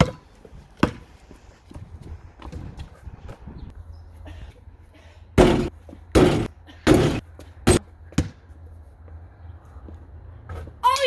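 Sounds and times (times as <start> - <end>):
basketball bouncing: 0.0 - 0.2, 0.8 - 1.1, 5.4 - 8.4.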